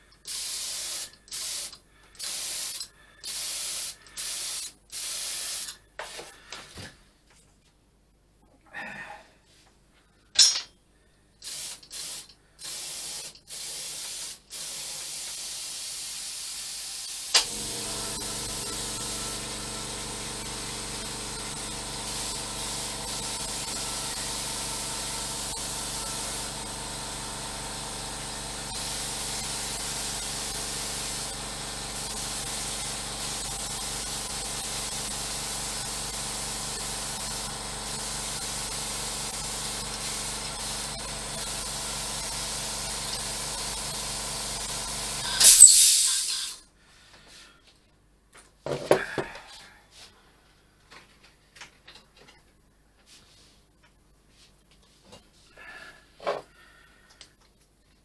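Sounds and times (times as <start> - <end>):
spray gun hissing: 0.0 - 5.8, 11.4 - 46.6
air compressor motor humming: 17.2 - 46.1.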